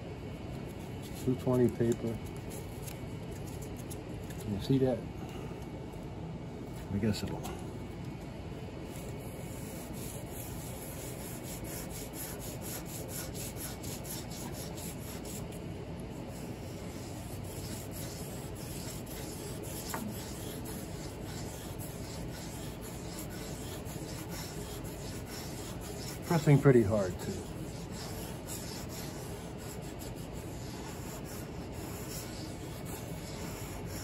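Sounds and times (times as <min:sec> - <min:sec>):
sandpaper rubbing on wood finish: 0:09.2 - 0:15.5, 0:16.3 - 0:34.0.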